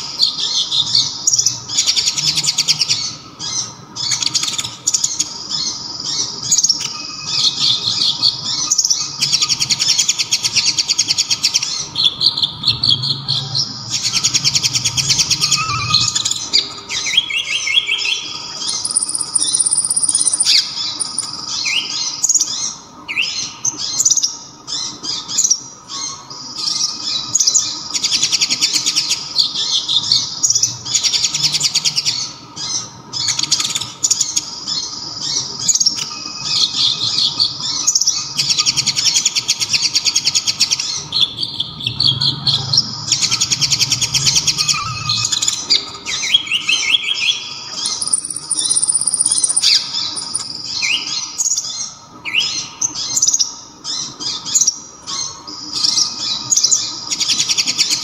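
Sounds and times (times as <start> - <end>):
faint steady hum: 0.0 - 58.0
sunbird singing trills: 0.0 - 58.0.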